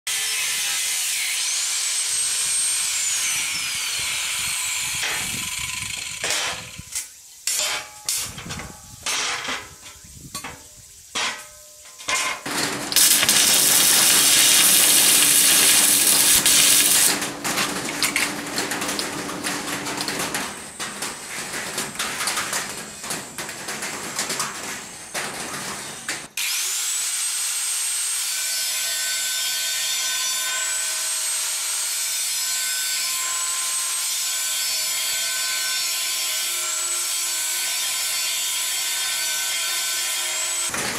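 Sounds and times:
angle grinder cutting steel: 0.1 - 6.6, 12.5 - 19.0
metal knocks and clanks: 11.2 - 26.2.

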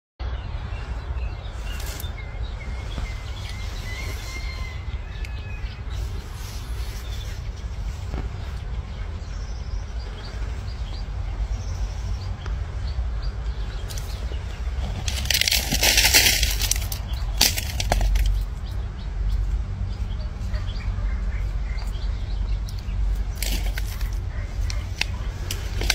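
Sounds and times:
bird trill: 0.2 - 7.7
small birds chirping: 0.2 - 25.9
steady low rumble: 0.2 - 25.9.

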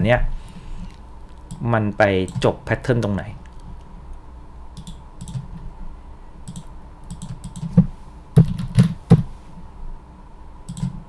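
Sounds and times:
typing on computer keyboard: 4.8 - 5.4, 6.5 - 7.7, 10.7 - 11.0
sharp clicks: 4.8 - 5.5, 6.5 - 7.7, 10.7 - 11.0.

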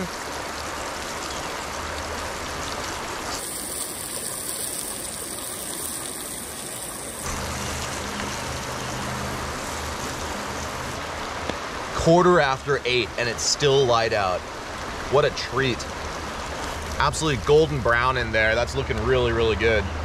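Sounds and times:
creek water running over rocks: 0.0 - 19.9
food sizzling in a frying pan: 3.2 - 11.0.

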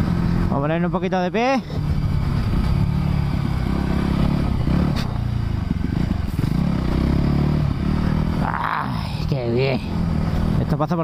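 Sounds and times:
motorcycle engine under load: 0.0 - 8.7.

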